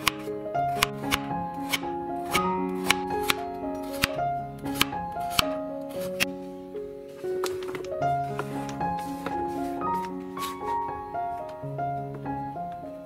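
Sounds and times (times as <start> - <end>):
background music: 0.0 - 13.0
knife cutting on wooden board: 0.8 - 4.2.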